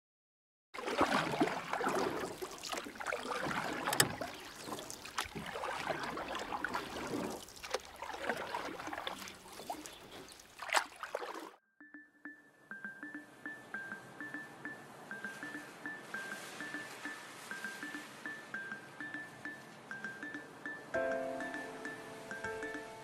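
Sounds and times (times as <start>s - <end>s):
water splashing and trickling: 0.8s - 11.6s, 15.3s - 18.6s.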